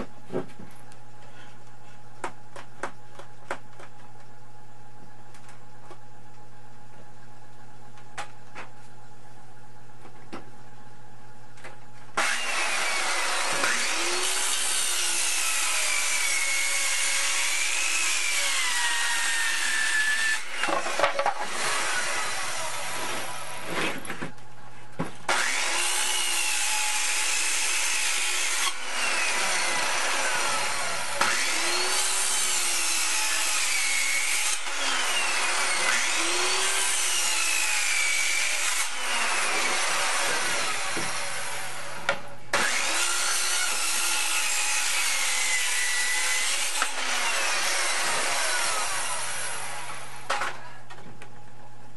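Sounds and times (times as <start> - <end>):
saw cutting wood: 12.2 - 24.3, 25.3 - 50.6.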